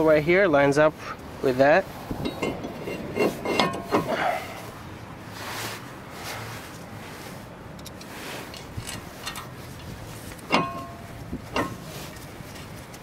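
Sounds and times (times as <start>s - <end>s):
light metallic clicks and taps: 7.8s - 13.0s.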